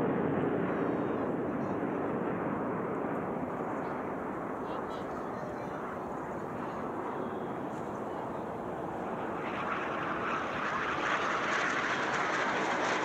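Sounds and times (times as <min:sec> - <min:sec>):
jets passing overhead: 0:00.0 - 0:13.0.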